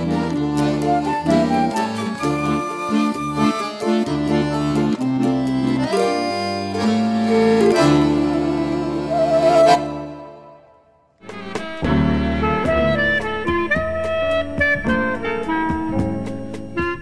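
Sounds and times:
accordion playing chords: 0:00.0 - 0:10.8.

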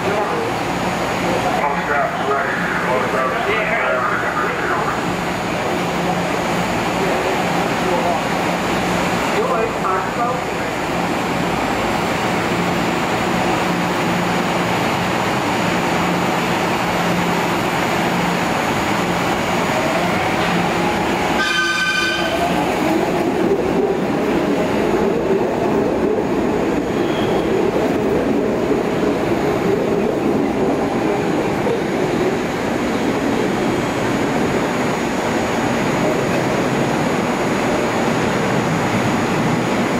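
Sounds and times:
train humming: 0:00.0 - 0:39.9
train horn blast: 0:21.4 - 0:22.4.

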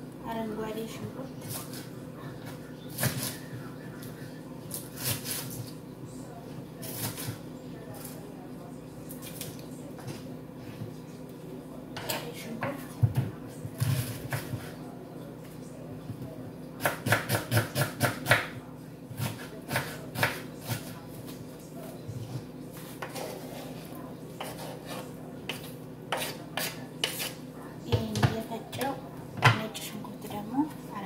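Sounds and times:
knife chopping on wooden board: 0:16.8 - 0:18.5, 0:24.4 - 0:27.4.

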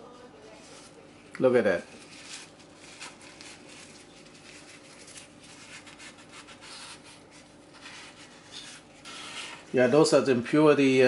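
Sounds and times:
faint steady hum: 0:00.0 - 0:11.0
paper napkin scraping metal pot: 0:01.7 - 0:09.8.

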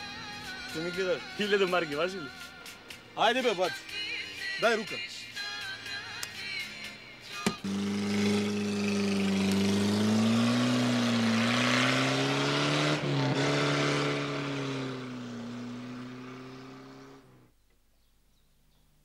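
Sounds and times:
car engine driving off: 0:07.5 - 0:17.4.

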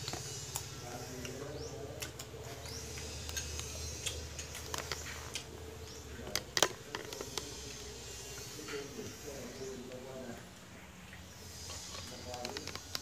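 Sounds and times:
lips smacking while eating: 0:02.0 - 0:05.6.

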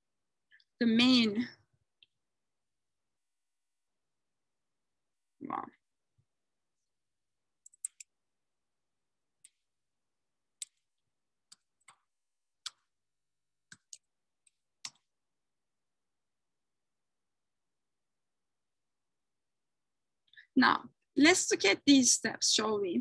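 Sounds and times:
keyboard keys clicking: 0:07.6 - 0:08.1.

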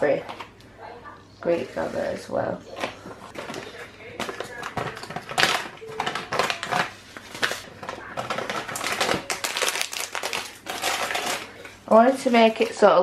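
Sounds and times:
plastic packet crinkling: 0:02.8 - 0:12.9.

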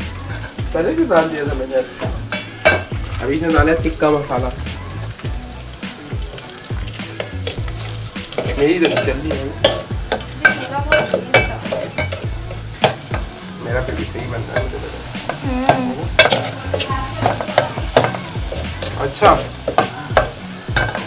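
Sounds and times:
chicken sizzling in oil: 0:00.0 - 0:21.0
metal spoon scraping pot: 0:08.3 - 0:13.0.

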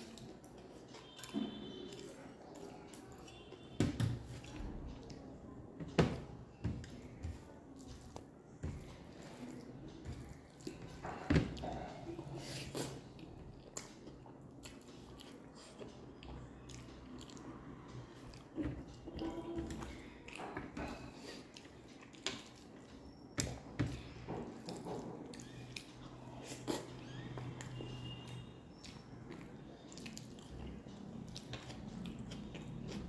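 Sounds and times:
chewing with mouth clicks: 0:09.1 - 0:23.7, 0:24.5 - 0:33.0.

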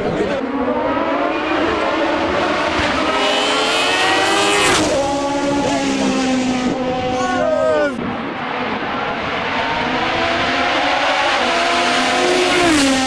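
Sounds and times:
race car accelerating past: 0:00.0 - 0:07.2, 0:08.0 - 0:13.0.

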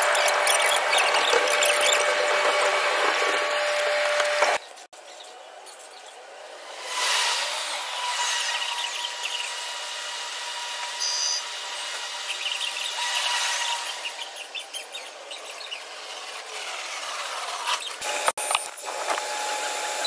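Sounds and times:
train passing with sweeping whines: 0:06.3 - 0:09.1.

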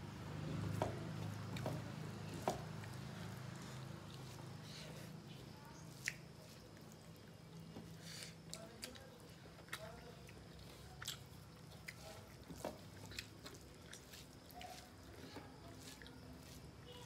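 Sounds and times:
chewing and lip smacks: 0:05.8 - 0:16.6.

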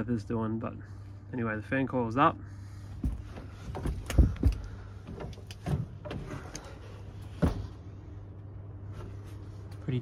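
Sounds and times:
steady low hum: 0:00.0 - 0:10.0
knocks and bumps on timbers: 0:03.0 - 0:06.4.

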